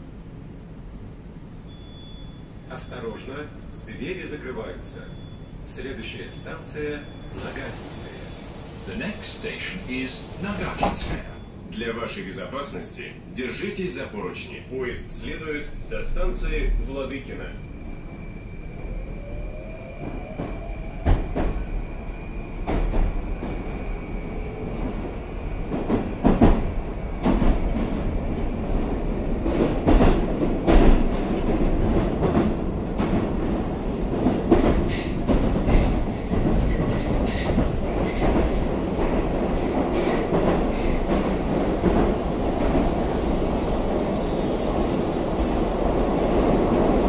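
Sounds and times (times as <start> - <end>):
train running noise: 7.0 - 11.7, 14.5 - 47.0.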